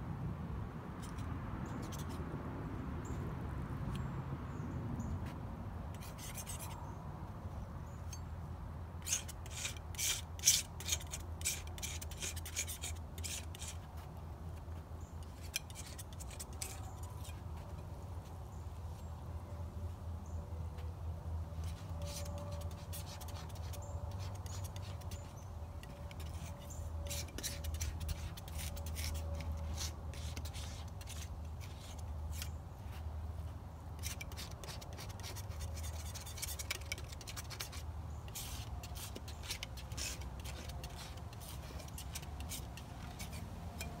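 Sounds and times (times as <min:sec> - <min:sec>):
palette knife scraping paint: 0:06.0 - 0:06.9, 0:09.0 - 0:14.1, 0:15.0 - 0:17.8, 0:21.6 - 0:33.0, 0:34.0 - 0:44.0.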